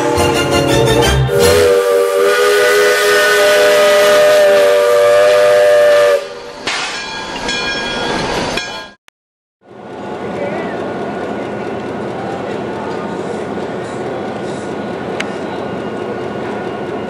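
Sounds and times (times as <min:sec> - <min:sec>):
steam locomotive whistle: 0:00.0 - 0:06.7
quiet train sounds: 0:00.0 - 0:09.0, 0:09.6 - 0:17.0.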